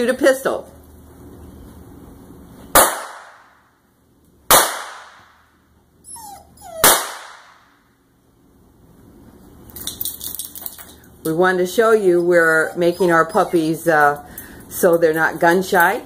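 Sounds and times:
starter pistol shots: 2.7s - 3.5s, 4.5s - 5.3s, 6.8s - 7.6s
puppy crying: 6.0s - 7.0s, 11.8s - 14.3s.

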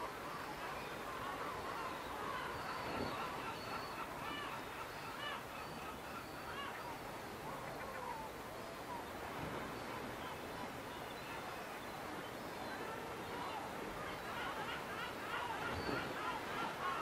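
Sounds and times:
steady outdoor hiss: 0.0s - 17.0s.

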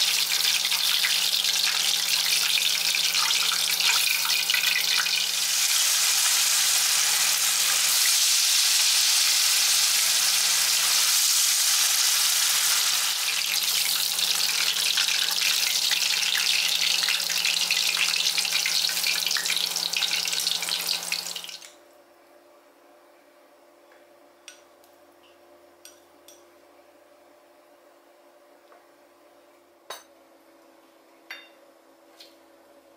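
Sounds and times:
chicken deep-frying in oil: 0.0s - 21.8s.

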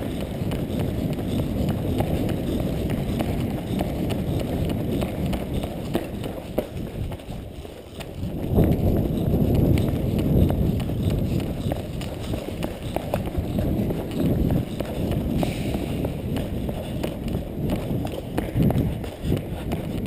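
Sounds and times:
running footsteps on concrete: 0.0s - 20.0s.

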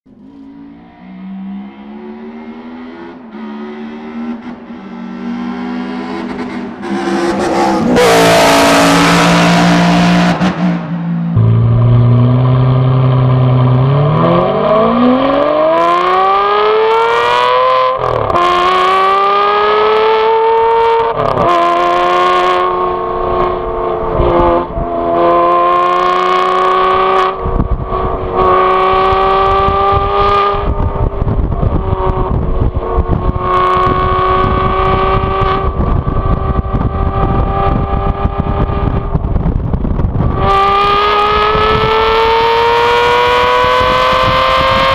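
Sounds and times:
loud rushing noise: 0.2s - 15.8s
sports car engine revving: 0.2s - 44.9s.

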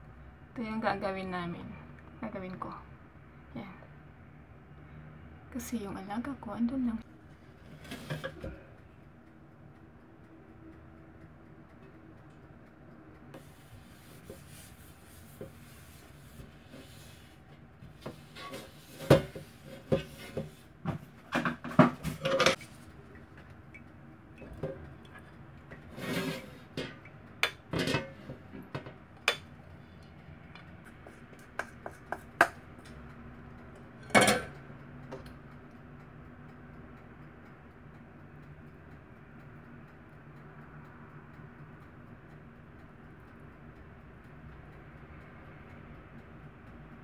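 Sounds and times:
hand rubbing oil on metal tray: 13.4s - 20.8s, 25.7s - 27.1s.

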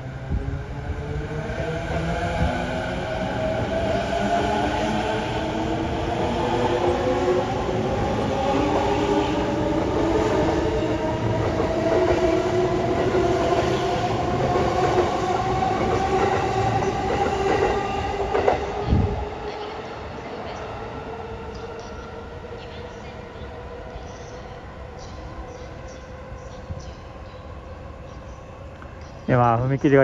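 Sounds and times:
train wheels rumbling on rails: 0.0s - 27.4s
sharp clacks of train wheels: 14.5s - 18.7s.

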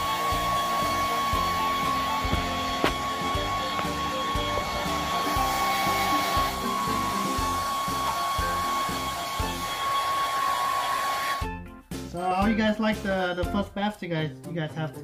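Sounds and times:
background music with beat: 0.0s - 9.8s, 11.4s - 15.0s
hair dryer blowing: 0.0s - 11.5s.

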